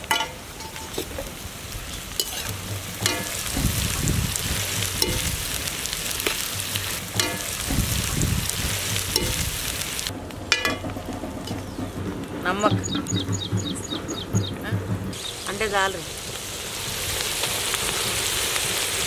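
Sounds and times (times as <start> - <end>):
metal spoon clinking against wok: 0.0 - 1.2, 2.2 - 3.9, 6.2 - 7.6, 9.1 - 9.5
vegetables sizzling in oil: 0.0 - 19.0.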